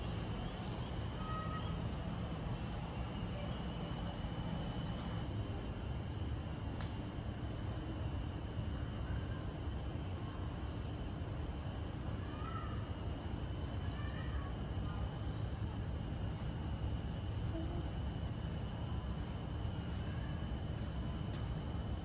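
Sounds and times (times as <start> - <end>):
air-conditioning room noise: 0.0 - 22.0
faint distant voices: 8.8 - 22.0.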